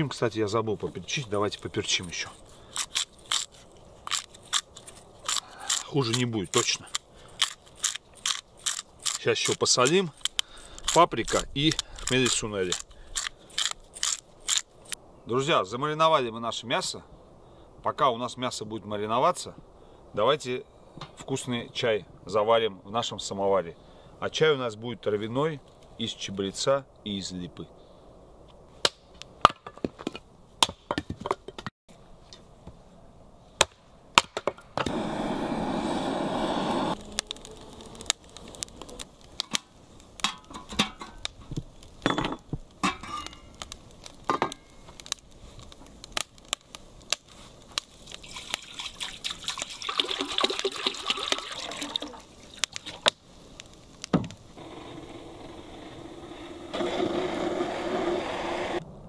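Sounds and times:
water being poured: 48.0 - 53.0.

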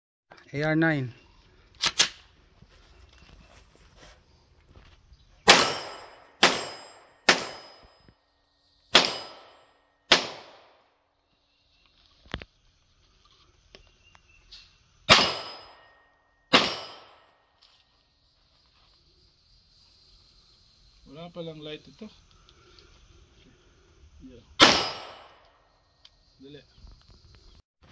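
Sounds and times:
carbine gunshots: 5.4 - 7.8, 8.9 - 10.9, 15.1 - 15.8, 16.5 - 17.2, 24.6 - 25.4.

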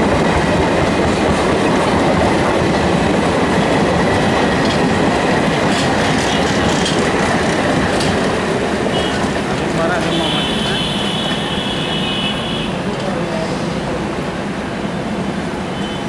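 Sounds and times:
train wheels running over rails: 0.0 - 11.5.

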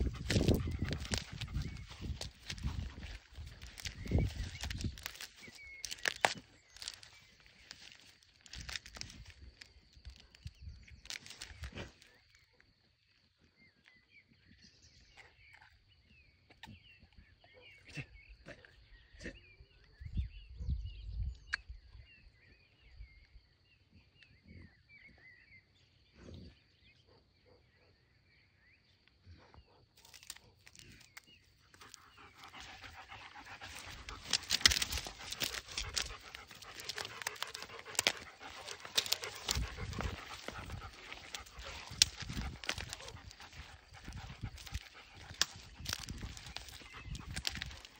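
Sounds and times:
faint birdsong: 0.0 - 47.9
dog rustling through grass: 32.4 - 45.6.

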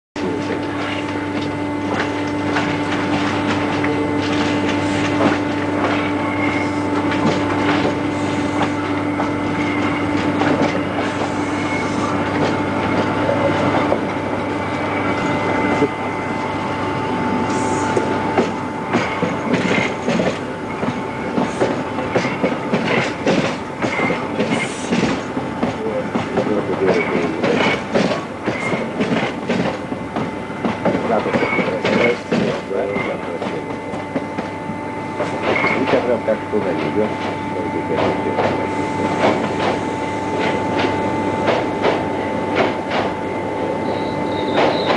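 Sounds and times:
steady train hum: 0.2 - 44.9
train running noise: 0.2 - 44.9
wheel squeals: 43.8 - 44.9.

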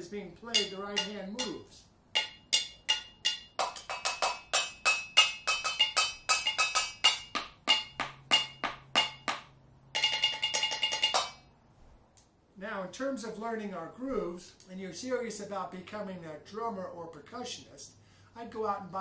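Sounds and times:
pencils drumming on household objects: 0.5 - 11.4.

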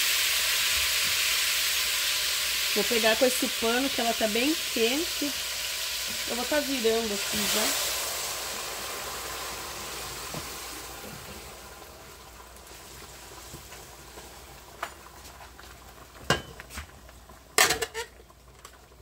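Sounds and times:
garlic sizzling in a hot pan: 0.0 - 19.0
metal pots clanking: 16.2 - 16.7, 17.6 - 18.1.

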